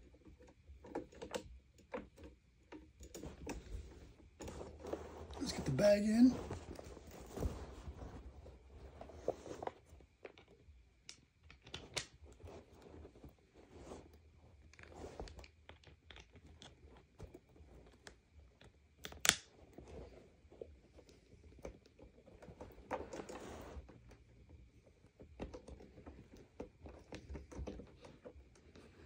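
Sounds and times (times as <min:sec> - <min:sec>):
rustling of vacuum parts: 0:00.0 - 0:10.8, 0:19.6 - 0:29.0.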